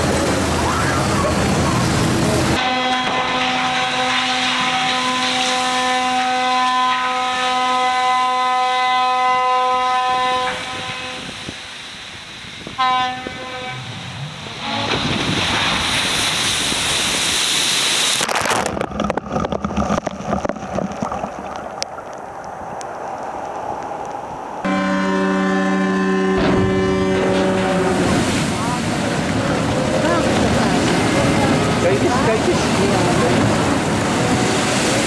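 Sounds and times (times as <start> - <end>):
ship's horn blasts: 2.5 - 11.9, 12.6 - 15.5, 24.6 - 35.0
wave splashing over bank: 10.2 - 24.7, 25.6 - 35.0.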